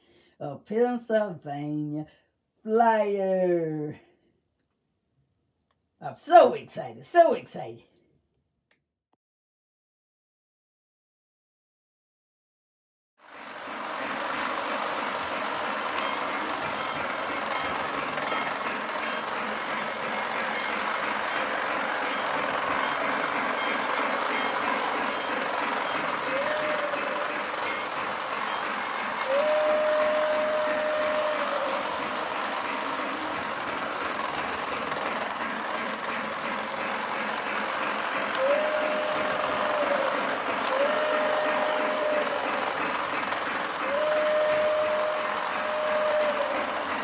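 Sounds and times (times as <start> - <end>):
toy train running on track: 13.2 - 47.0.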